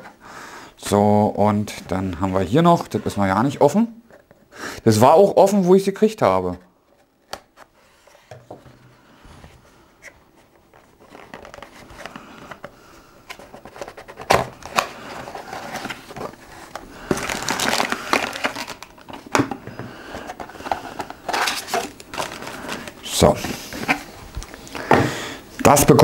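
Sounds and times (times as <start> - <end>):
packaging rustling and crinkling: 6.9 - 24.8.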